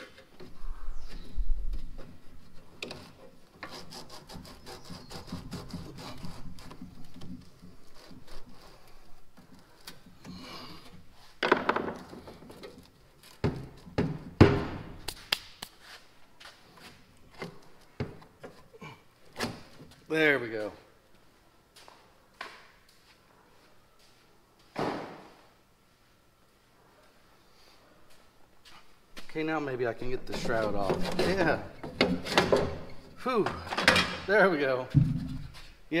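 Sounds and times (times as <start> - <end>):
screwdriver scraping sheet metal: 2.8 - 8.9.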